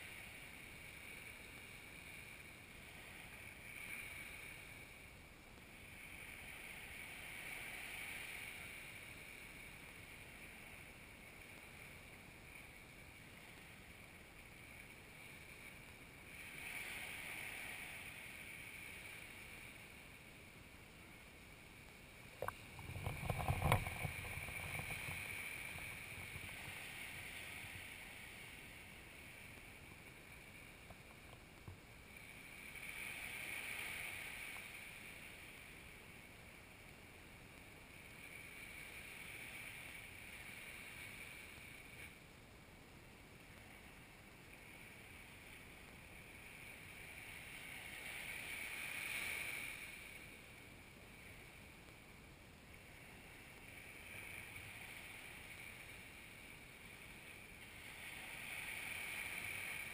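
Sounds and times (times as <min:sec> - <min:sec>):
waves washing up a beach: 0:00.0 - 0:59.9
low rumble: 0:22.2 - 0:31.9.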